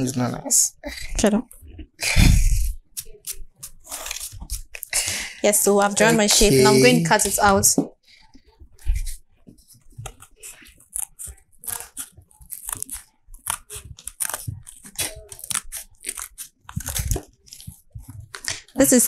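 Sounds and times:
scissors snipping card: 2.9 - 4.9, 10.0 - 18.7.

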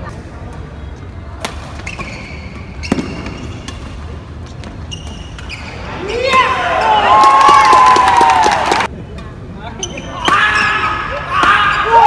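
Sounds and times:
shoes squeaking on court: 0.9 - 6.1, 9.8 - 10.3.

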